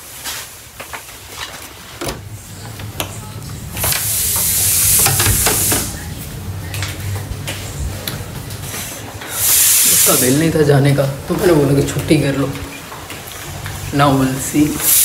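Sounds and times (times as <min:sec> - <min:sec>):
steady low hum: 0:01.7 - 0:09.4
loud hissing rush: 0:03.8 - 0:06.1, 0:08.6 - 0:11.2, 0:13.9 - 0:15.0.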